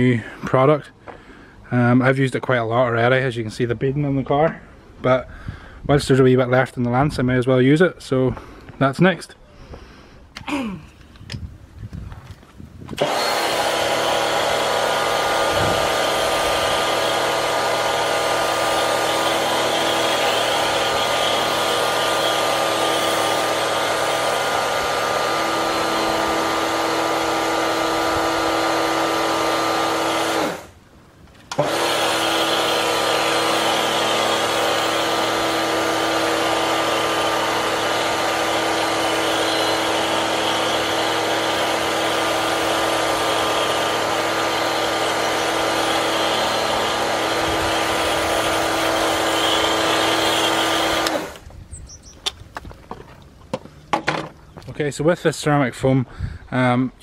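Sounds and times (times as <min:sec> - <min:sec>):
pressure washer motor whine: 0:13.0 - 0:30.8, 0:31.5 - 0:51.5.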